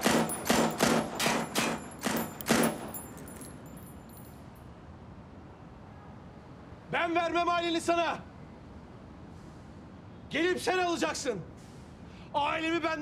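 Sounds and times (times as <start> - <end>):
pistol shots: 0.0 - 3.0.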